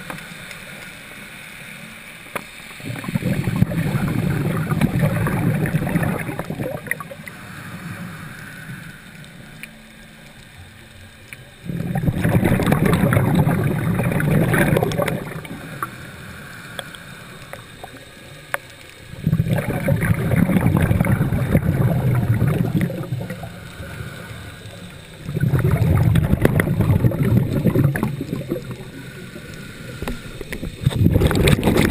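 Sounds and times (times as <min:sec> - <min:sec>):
bubbling exhalations underwater: 0:02.8 - 0:07.5, 0:11.6 - 0:16.0, 0:19.1 - 0:31.9
regulator inhalation: 0:02.8 - 0:09.6, 0:11.7 - 0:17.9, 0:19.2 - 0:30.8.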